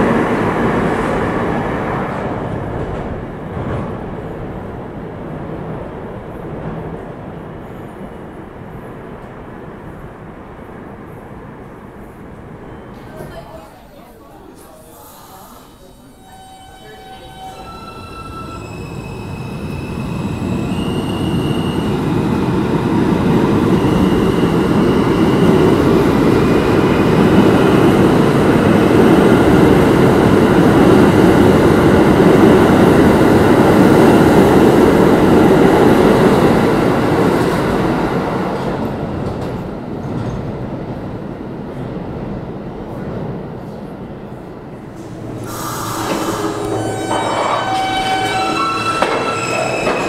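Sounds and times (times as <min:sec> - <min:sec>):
train rumble and wheel noise: 0:00.0 - 0:50.0
subway motor whine: 0:14.6 - 0:50.0.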